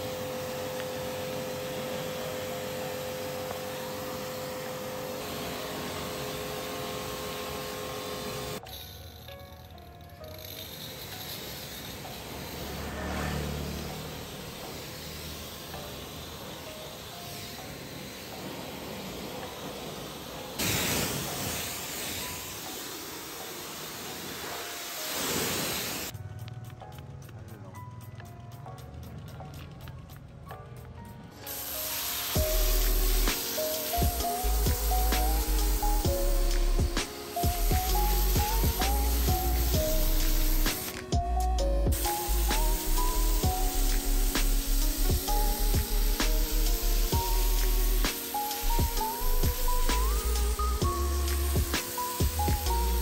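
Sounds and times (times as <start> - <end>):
pressure washer water jet hissing: 0.0 - 9.0, 9.7 - 26.2, 31.4 - 53.0
motor hum: 9.3 - 20.6, 31.5 - 53.0.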